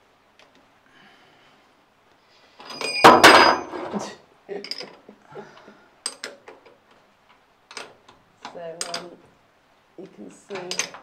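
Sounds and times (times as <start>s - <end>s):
metal tools clattering: 2.6s - 5.0s, 10.5s - 11.0s.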